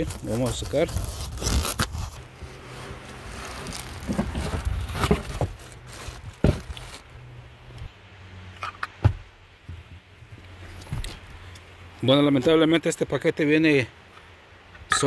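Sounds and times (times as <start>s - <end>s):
plastic bag crinkling: 0.0s - 7.1s
cardboard packaging rustling: 0.0s - 7.2s.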